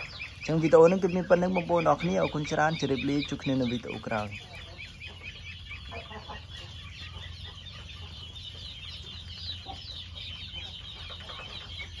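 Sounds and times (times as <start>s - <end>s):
ducklings peeping: 0.0s - 12.0s.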